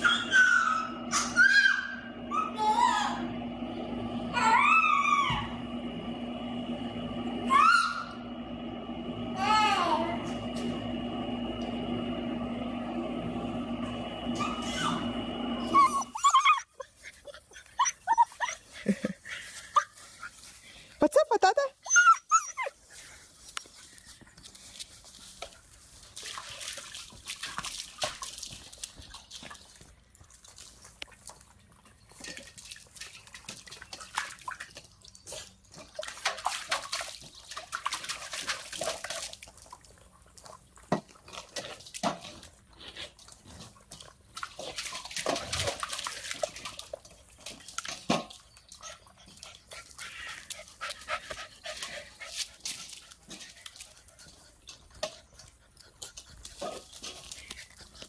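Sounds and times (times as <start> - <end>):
puppies yipping: 0.0 - 3.3, 15.6 - 18.8, 21.8 - 22.8
paws scuffling at metal bowl: 22.7 - 58.0.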